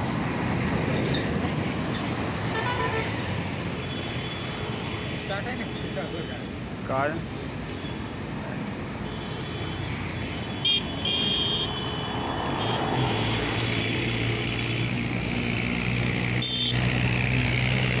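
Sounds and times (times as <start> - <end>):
highway traffic: 0.0 - 18.0
vehicle horn toots: 10.6 - 11.8, 16.4 - 16.8
motorcycles passing close: 12.2 - 18.0.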